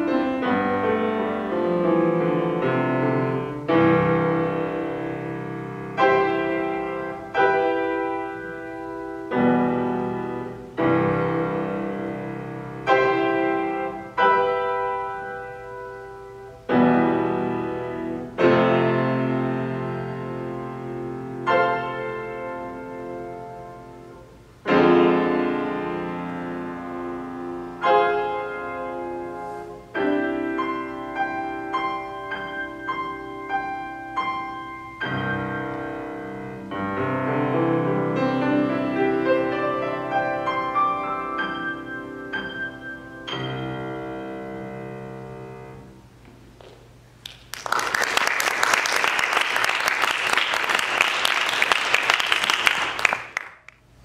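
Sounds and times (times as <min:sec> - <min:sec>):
grand piano playing: 0:00.0 - 0:46.2
audience applause: 0:47.2 - 0:53.8.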